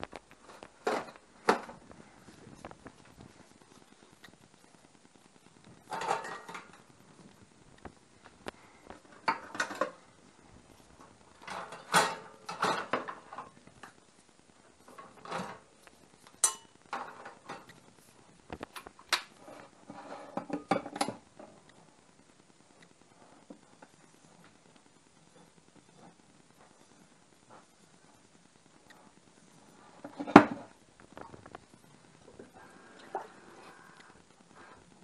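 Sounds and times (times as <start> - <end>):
utensils and cookware clattering: 5.9 - 6.9, 9.1 - 10.0, 11.4 - 13.6, 16.4 - 17.7, 19.8 - 21.2.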